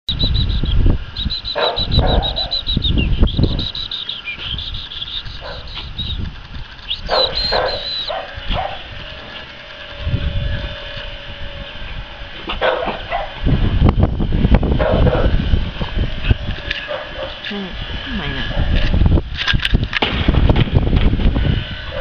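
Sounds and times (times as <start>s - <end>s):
high-pitched rapid chirping: 0.1s - 8.2s
short calls: 0.1s - 11.5s
low rumble on microphone: 0.1s - 22.0s.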